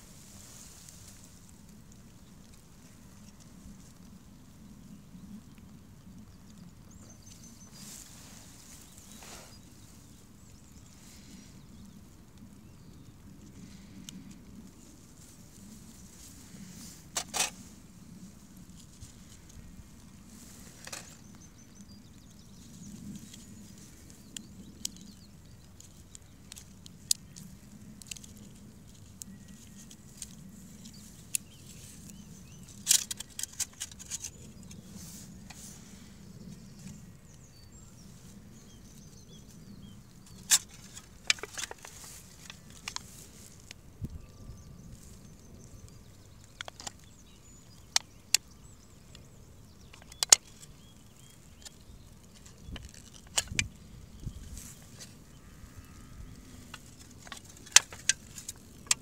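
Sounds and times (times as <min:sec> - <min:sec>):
aluminium crinkling: 0:13.2 - 0:37.4, 0:38.0 - 0:59.0.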